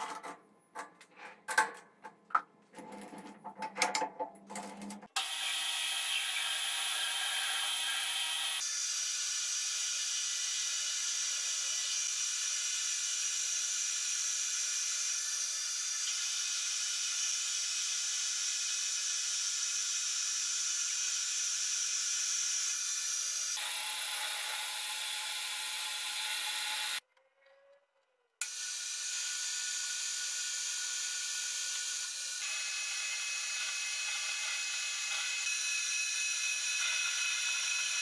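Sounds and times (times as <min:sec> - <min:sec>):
metal lathe cutting hiss: 0:05.2 - 0:27.0.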